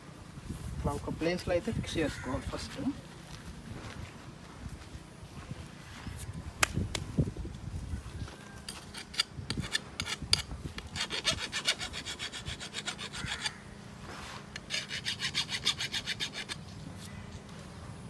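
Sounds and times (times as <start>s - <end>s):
crowbar scraping into soil: 13.4s - 16.6s.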